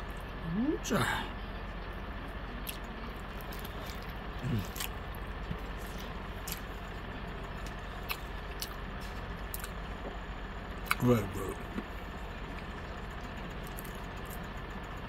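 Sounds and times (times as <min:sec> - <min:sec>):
background hum: 0:00.0 - 0:15.0
man chewing wetly: 0:02.6 - 0:10.0, 0:10.8 - 0:11.0, 0:11.6 - 0:14.5.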